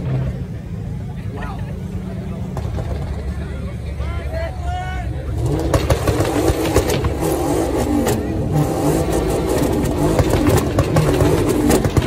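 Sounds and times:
large crowd noise: 0.0 - 12.0
car engine revving: 5.2 - 12.0.

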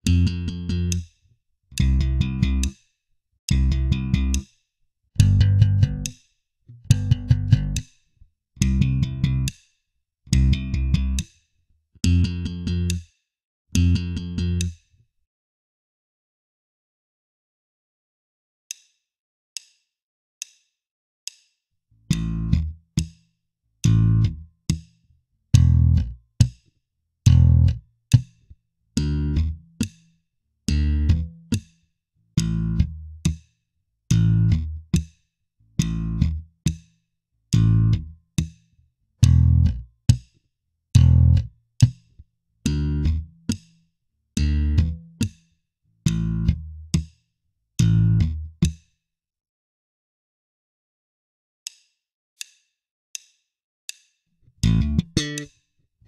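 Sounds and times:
metronome clicks: 0.0 - 1.0, 1.8 - 2.8, 3.5 - 4.5, 13.8 - 14.8, 54.6 - 55.6
slapped electric bass: 0.0 - 1.0, 1.8 - 2.7, 3.5 - 4.4, 5.2 - 7.9, 8.6 - 9.5, 10.3 - 11.3, 12.0 - 13.0, 13.8 - 14.8, 22.1 - 23.1, 23.8 - 24.8, 25.5 - 26.6, 27.3 - 28.3, 29.0 - 29.9, 30.7 - 31.6, 32.4 - 33.4, 34.1 - 35.0, 35.8 - 36.4, 37.5 - 38.5, 39.2 - 40.2, 41.0 - 42.0, 42.6 - 43.6, 44.4 - 45.4, 46.1 - 47.1, 47.8 - 48.8, 54.6 - 55.5.

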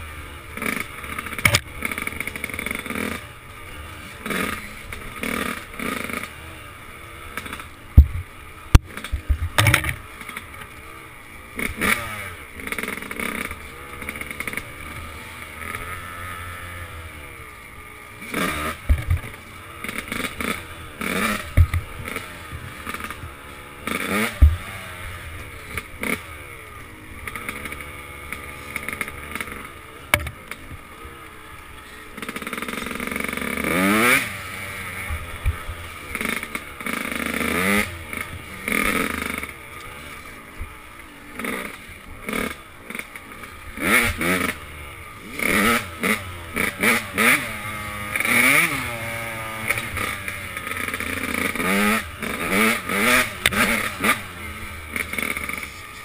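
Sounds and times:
dirt bike engine revving: 0.0 - 56.0
bike knocking over bumps: 8.0 - 10.0, 18.9 - 19.4.

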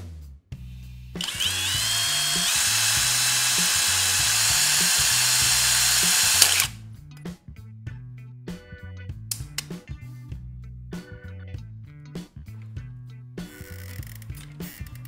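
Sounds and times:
drill boring into metal can: 1.2 - 6.7.

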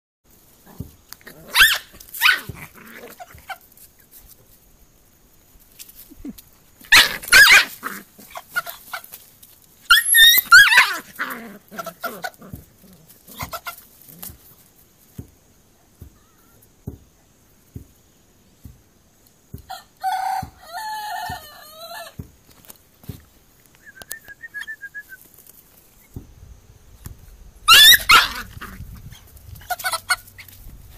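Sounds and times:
puppy yelping and barking: 1.3 - 3.6, 6.9 - 9.0, 9.9 - 12.5, 27.7 - 28.8, 29.6 - 30.6.

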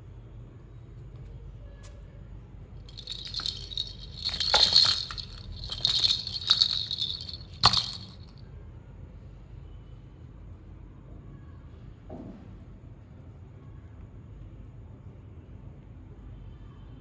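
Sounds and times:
small bell jingling: 2.9 - 8.3.

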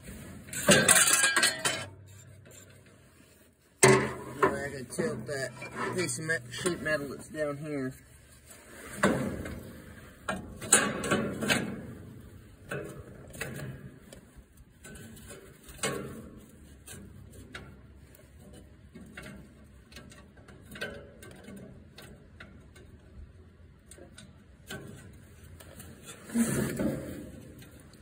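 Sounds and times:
metal bracket clicks and knocks: 0.6 - 2.7, 3.8 - 6.1.

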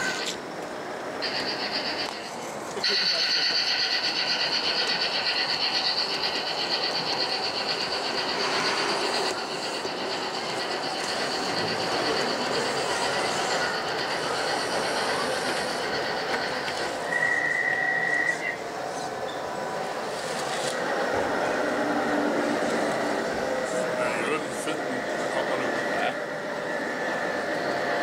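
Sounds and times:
model train whine: 0.0 - 28.0.

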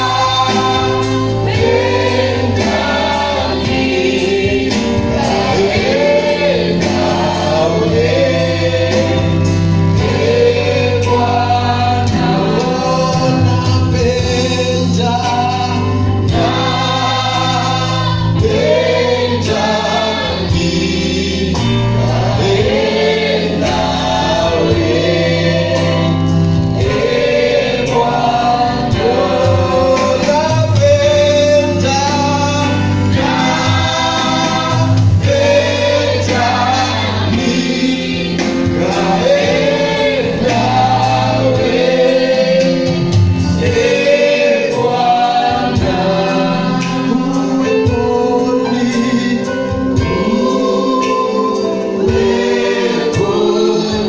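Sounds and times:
group of singers: 0.0 - 54.0
instrumental backing with beat: 0.0 - 54.0
man singing lead: 11.2 - 16.5, 45.8 - 52.4.

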